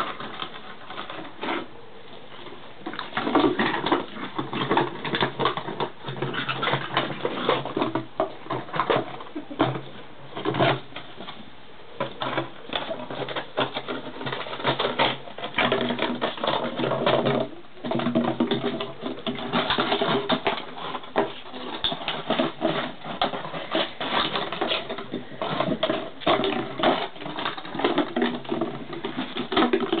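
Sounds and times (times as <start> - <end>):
paws and claws clattering on concrete: 0.0 - 30.0
plastic bottle knocked and chewed: 12.0 - 30.0.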